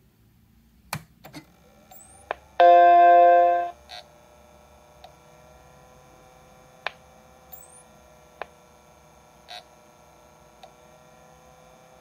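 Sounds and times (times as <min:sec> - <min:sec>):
faint steady hum: 0:02.0 - 0:04.0
short buzz: 0:02.6 - 0:03.8.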